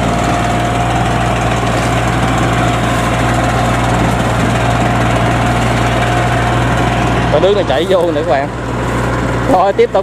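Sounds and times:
tractor engine droning: 0.0s - 10.0s.

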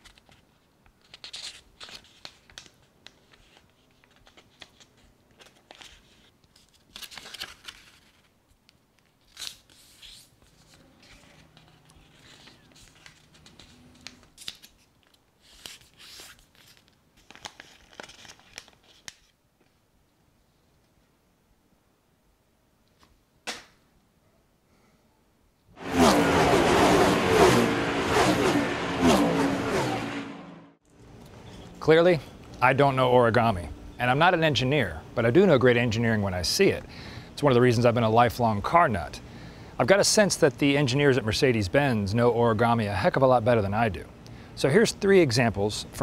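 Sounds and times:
paper crumpled into ball: 0.0s - 8.4s, 9.0s - 19.4s
paper rustling and crinkling: 0.0s - 8.4s, 9.0s - 19.8s.

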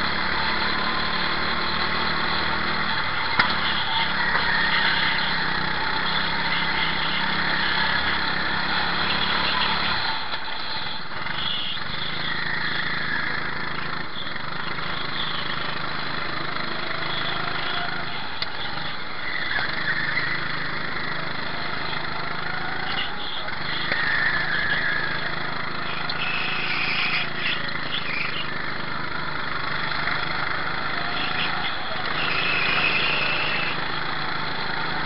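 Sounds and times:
other karts passing: 0.0s - 11.4s, 15.5s - 35.0s
go-kart engine running hard: 0.0s - 35.0s.

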